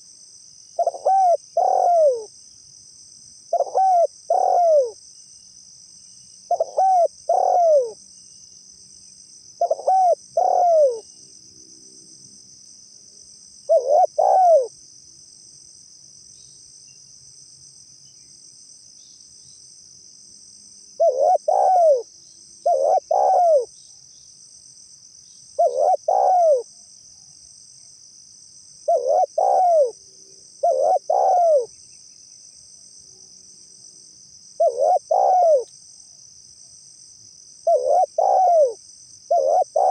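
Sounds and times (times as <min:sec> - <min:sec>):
crickets trilling: 0:00.0 - 0:39.9
dove cooing: 0:00.8 - 0:02.3, 0:03.5 - 0:05.0, 0:06.5 - 0:08.0, 0:09.6 - 0:11.0, 0:13.7 - 0:14.7, 0:21.0 - 0:23.7, 0:25.6 - 0:26.7, 0:28.9 - 0:30.0, 0:30.6 - 0:31.7, 0:34.6 - 0:35.7, 0:37.6 - 0:39.9.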